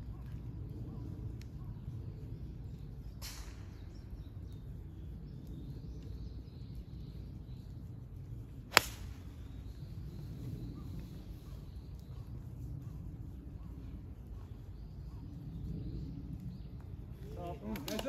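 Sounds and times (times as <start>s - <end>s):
outdoor background noise: 0.0s - 18.0s
golf club striking ball: 8.7s - 9.2s
golf club swish: 8.7s - 9.3s.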